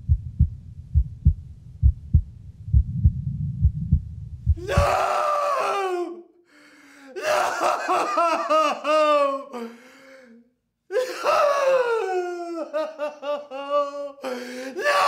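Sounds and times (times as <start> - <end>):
girl laughing: 7.5 - 9.4, 12.4 - 14.1.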